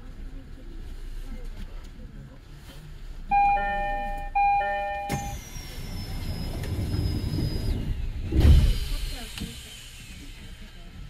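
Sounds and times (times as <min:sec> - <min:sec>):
train door closing chime: 0:03.4 - 0:07.0
doors shutting with a clunk: 0:05.0 - 0:08.8.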